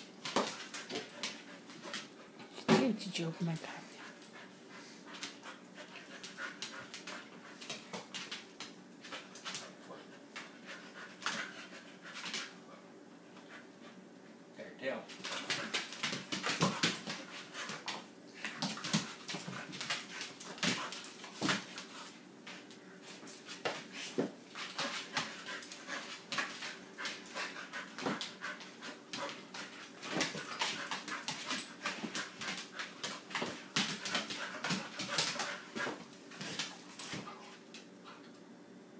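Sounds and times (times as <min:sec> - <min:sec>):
dog panting and whimpering: 0:03.6 - 0:07.8, 0:09.1 - 0:12.8, 0:24.6 - 0:37.5.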